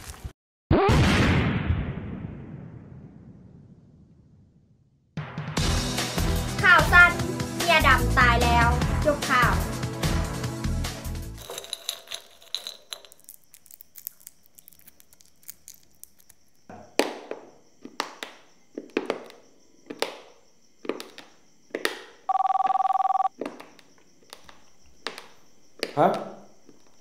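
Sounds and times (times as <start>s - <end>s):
telephone ringing: 22.3s - 23.3s.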